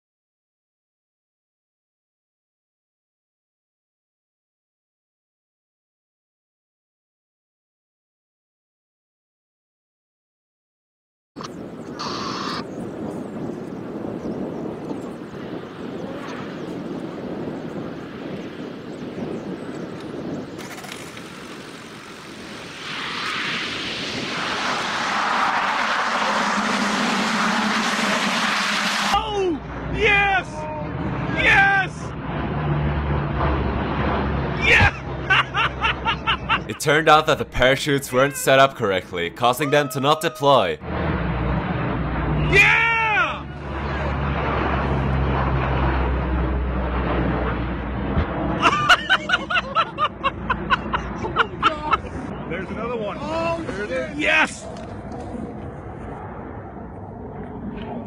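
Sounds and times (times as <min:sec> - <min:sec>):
wind noise: 0:11.4 - 0:31.4
aircraft engines droning: 0:11.4 - 0:58.0
propeller roar: 0:11.4 - 0:58.0
steady low hum: 0:23.6 - 0:31.4
man laughing: 0:34.7 - 0:38.6, 0:48.6 - 0:52.3.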